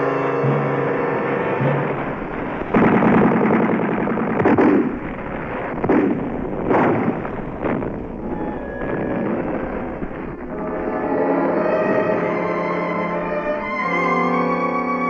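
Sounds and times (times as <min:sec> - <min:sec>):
explosion blasts: 0:01.6 - 0:10.5
gunfire bursts: 0:01.8 - 0:08.2.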